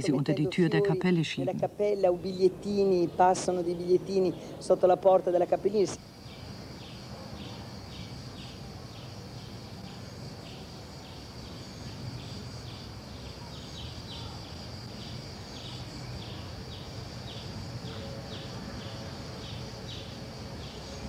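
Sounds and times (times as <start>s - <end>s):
high insect hum: 0.0s - 21.0s
insect chirping in pulses: 0.0s - 21.0s.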